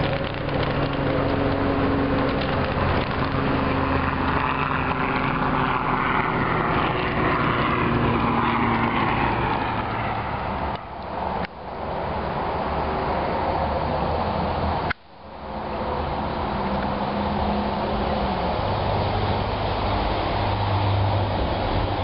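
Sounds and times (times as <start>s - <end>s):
model train wheels rumbling: 0.0s - 11.5s.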